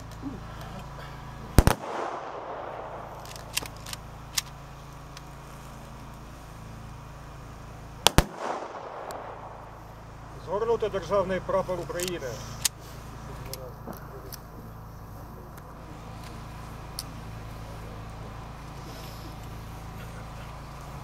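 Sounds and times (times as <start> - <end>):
rolling echo: 1.6 - 4.1, 8.0 - 10.3
rifle volleys: 1.6 - 4.6, 8.0 - 9.8.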